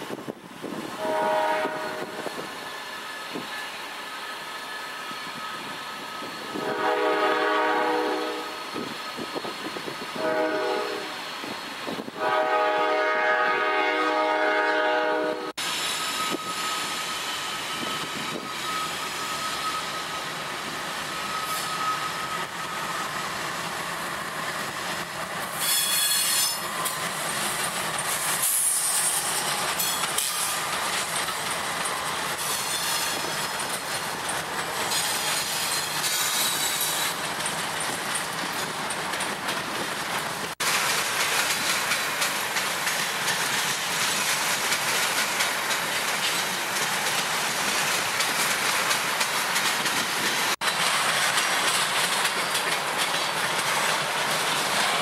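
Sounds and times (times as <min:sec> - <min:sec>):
train cars rolling on rails: 0:00.0 - 0:55.0
locomotive horn blasts: 0:01.0 - 0:02.2, 0:06.6 - 0:08.6, 0:10.2 - 0:11.2, 0:12.2 - 0:15.6
high wheel squeal: 0:01.8 - 0:07.1, 0:15.6 - 0:23.4, 0:25.5 - 0:38.8.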